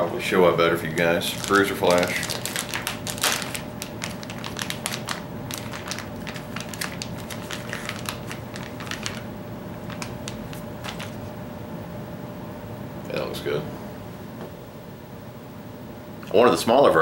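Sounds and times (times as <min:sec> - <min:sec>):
plastic packaging crinkling: 0:01.2 - 0:11.3.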